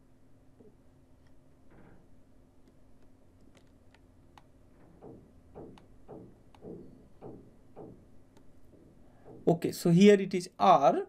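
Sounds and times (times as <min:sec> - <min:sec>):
computer mouse clicking: 0:02.6 - 0:04.5.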